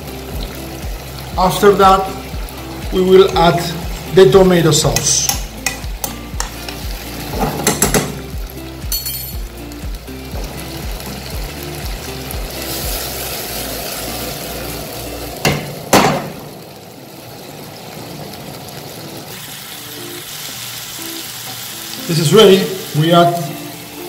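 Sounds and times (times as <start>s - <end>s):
background music with steady beat: 0.0s - 17.1s, 19.4s - 24.0s
food sizzling in frying pan: 0.0s - 24.0s
pan clanking on stove grate: 5.0s - 8.3s.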